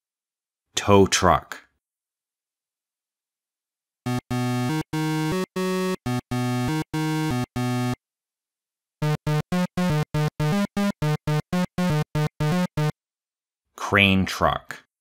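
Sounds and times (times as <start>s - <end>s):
video game synthesizer tune: 4.1s - 8.0s, 9.0s - 12.9s.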